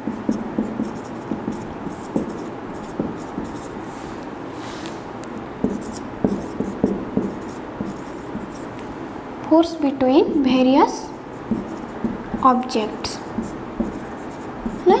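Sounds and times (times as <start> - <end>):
marker scratching on whiteboard: 0.0 - 5.0, 5.6 - 8.8, 11.3 - 15.0
marker tip tapping: 11.5 - 12.4, 13.4 - 15.0.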